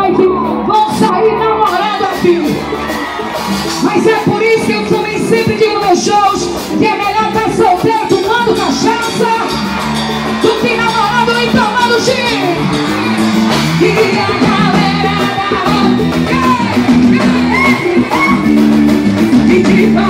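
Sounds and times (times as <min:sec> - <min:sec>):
live band music: 0:00.0 - 0:20.0
woman singing through pa: 0:13.8 - 0:18.5, 0:19.3 - 0:20.0.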